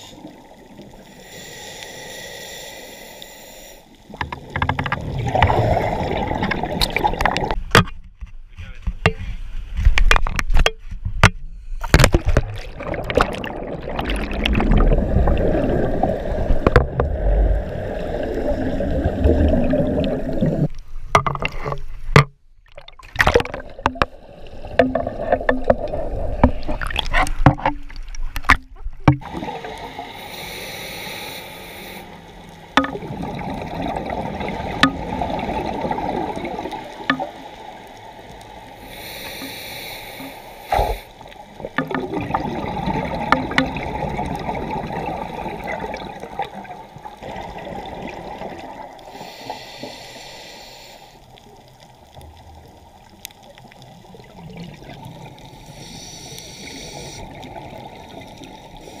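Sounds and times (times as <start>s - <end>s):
water splashing: 4.0s - 7.7s, 11.8s - 50.4s, 51.3s - 59.0s
muffled underwater rushing: 4.1s - 7.7s, 11.8s - 22.0s, 22.8s - 50.7s.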